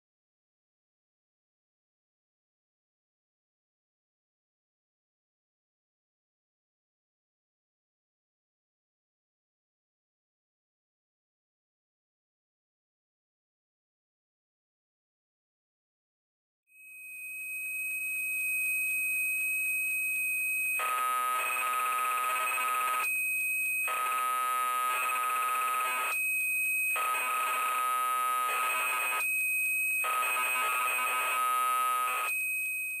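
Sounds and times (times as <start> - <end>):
warbling data signal: 20.8 - 23.1, 23.9 - 26.2.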